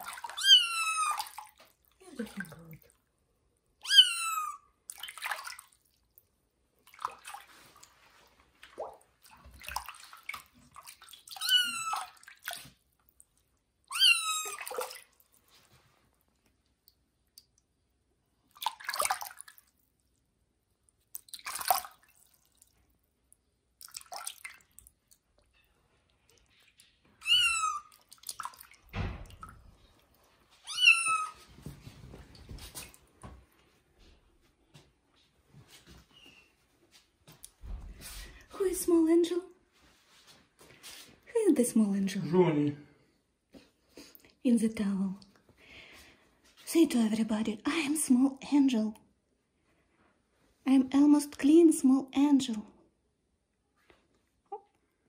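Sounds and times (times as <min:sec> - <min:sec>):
water sloshing in a washbasin: 0:00.0 - 0:42.4
kitten meowing: 0:00.3 - 0:01.4, 0:03.8 - 0:04.6, 0:11.4 - 0:12.1, 0:13.9 - 0:14.7, 0:27.2 - 0:27.9, 0:30.6 - 0:31.4.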